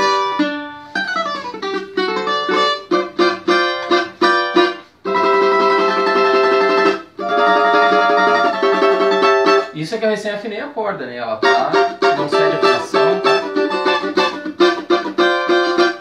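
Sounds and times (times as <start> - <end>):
small guitar strummed: 0.0 - 9.8, 11.4 - 16.0.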